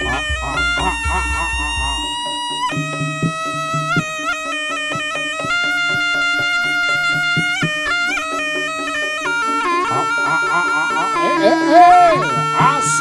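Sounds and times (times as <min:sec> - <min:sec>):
hand drum strokes: 0:00.0 - 0:05.9
shrill reed trumpet melody: 0:00.0 - 0:13.0.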